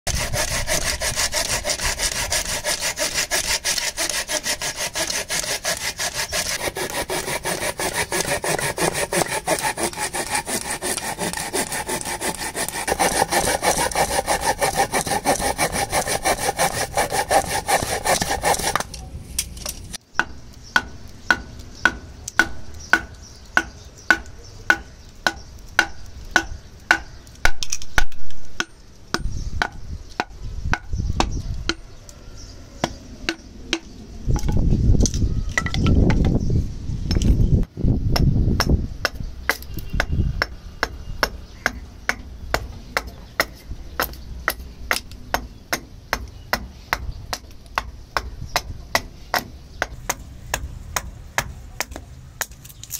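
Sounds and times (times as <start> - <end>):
pruning saw cutting log: 0.1 - 19.0
wooden baton striking axe head: 20.2 - 31.8.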